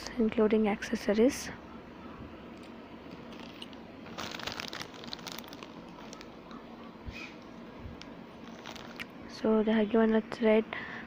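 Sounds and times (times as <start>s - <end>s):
plastic zip bag crinkling: 3.1s - 6.6s, 7.4s - 9.1s.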